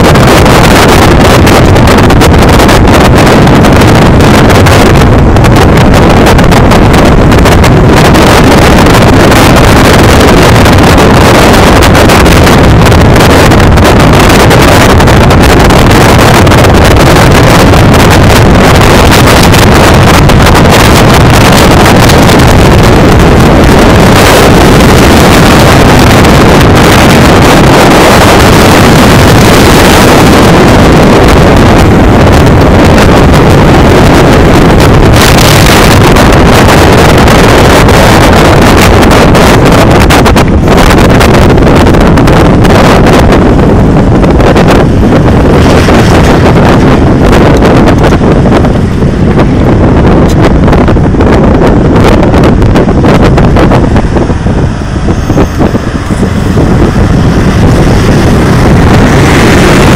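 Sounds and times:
truck driving rumble: 0.0s - 59.9s
wind rushing on microphone: 0.0s - 59.9s.

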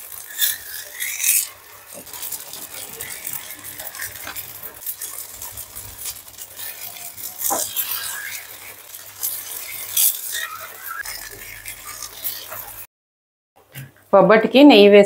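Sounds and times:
ghee sizzling and crackling: 0.0s - 12.9s
scrapes or rustles: 0.0s - 12.9s.

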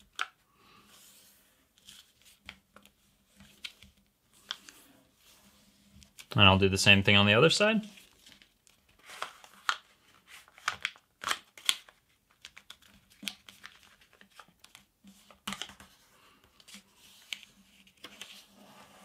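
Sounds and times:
paper rustling and crinkling: 7.9s - 19.0s.

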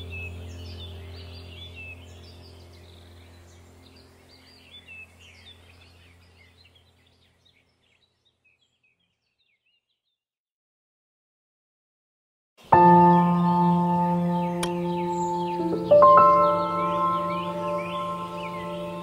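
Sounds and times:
steady low hum: 0.0s - 8.3s, 12.6s - 19.0s
small birds chirping: 0.0s - 10.2s, 12.6s - 19.0s.

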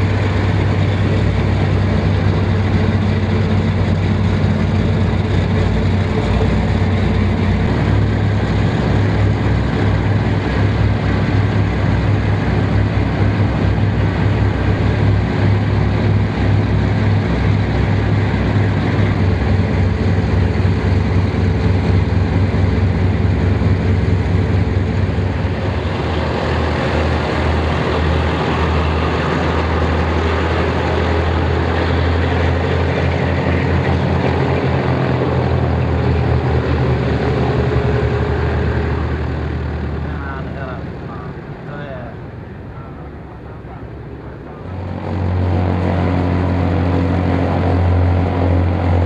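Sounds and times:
propeller aircraft engines droning: 0.0s - 49.0s.

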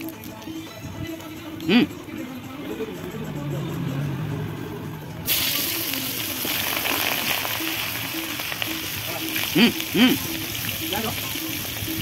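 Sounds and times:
hot oil sizzling in a pan: 5.3s - 12.0s.

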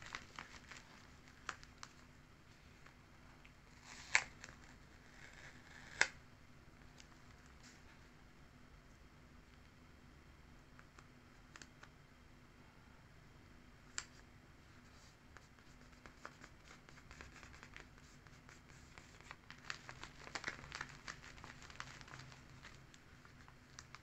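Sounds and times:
paper rustling and scratching: 14.8s - 24.0s.

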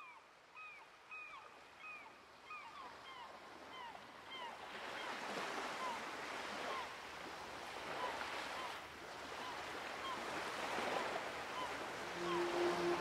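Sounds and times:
sea waves washing: 9.2s - 13.0s
sustained music tones: 12.0s - 13.0s.

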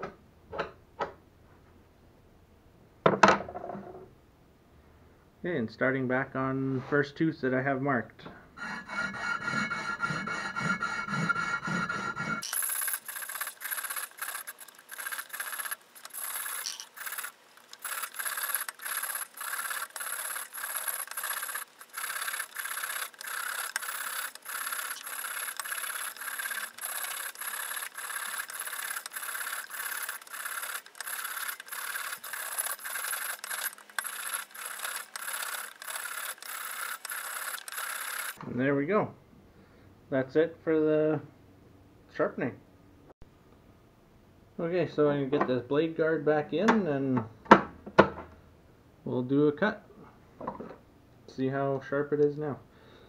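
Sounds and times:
saw teeth rasping on sandpaper: 8.6s - 38.4s.

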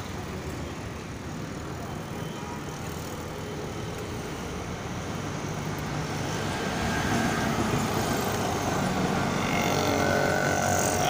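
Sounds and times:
low rumble of distant vehicles: 0.0s - 11.0s.

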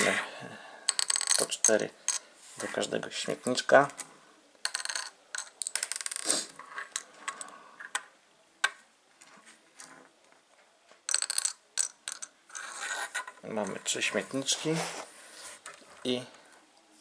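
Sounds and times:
plastic blocks clicking and rattling: 0.9s - 2.2s, 3.8s - 10.0s, 11.1s - 13.9s.

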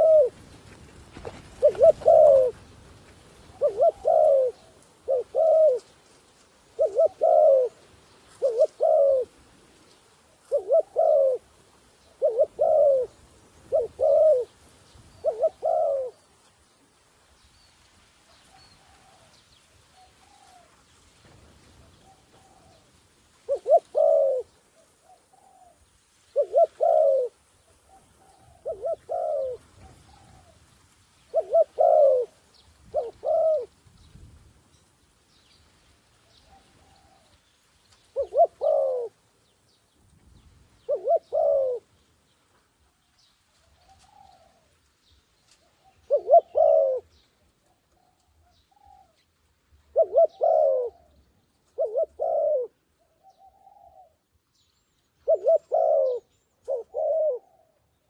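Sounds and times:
dove cooing: 0.0s - 2.8s, 3.4s - 6.0s, 6.7s - 9.4s, 10.4s - 16.3s, 18.4s - 20.8s, 21.8s - 30.6s, 31.3s - 33.7s, 36.4s - 37.4s, 38.1s - 39.2s, 40.8s - 41.9s, 43.7s - 44.8s, 45.6s - 49.2s, 49.8s - 54.3s, 55.2s - 58.0s.

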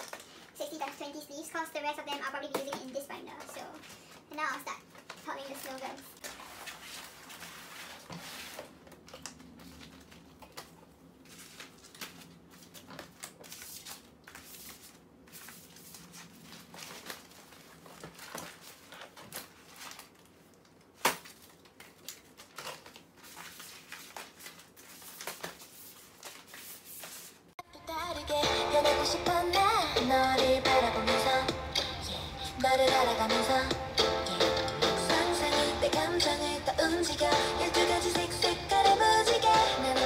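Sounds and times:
plastic sleeves rustling and crinkling: 0.0s - 27.6s.

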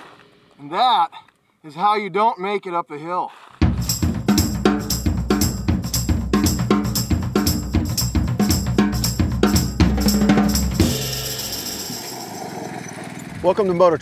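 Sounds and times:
drum beat and bass music: 3.6s - 12.4s.

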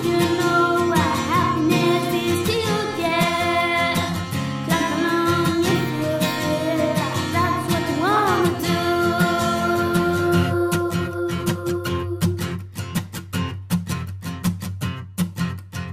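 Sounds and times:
girl singing into microphone: 0.0s - 12.6s.

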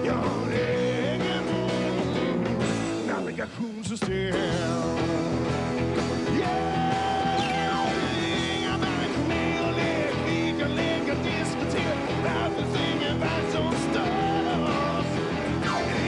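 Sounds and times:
live rock band playing: 0.0s - 16.0s
electric guitar notes bending: 4.2s - 16.0s.

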